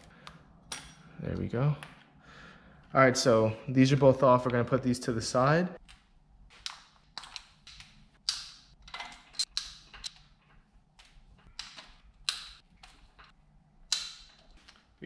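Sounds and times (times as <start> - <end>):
socket ratchet clicking: 6.7 - 10.2.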